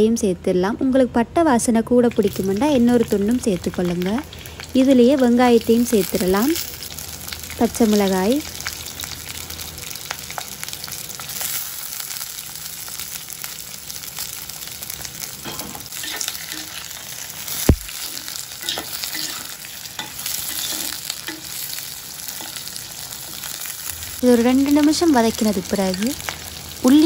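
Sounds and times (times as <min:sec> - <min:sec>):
onions sizzling in hot oil: 0:02.0 - 0:27.0
spoon stirring in a pot: 0:15.4 - 0:16.9, 0:18.0 - 0:21.6.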